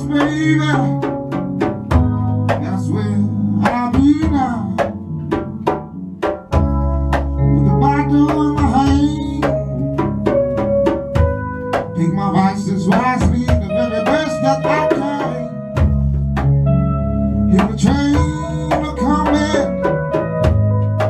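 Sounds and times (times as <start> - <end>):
man singing: 0.0 - 1.2, 2.5 - 5.2, 7.4 - 9.9, 12.0 - 15.8, 17.5 - 20.0
bass guitar notes: 0.0 - 21.0
drum kit beat: 0.0 - 21.0
keyboard: 0.0 - 21.0.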